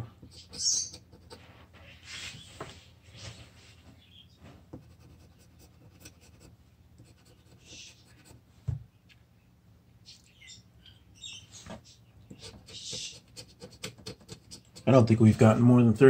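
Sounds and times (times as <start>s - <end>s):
scratch ticket being scraped: 12.3s - 15.1s.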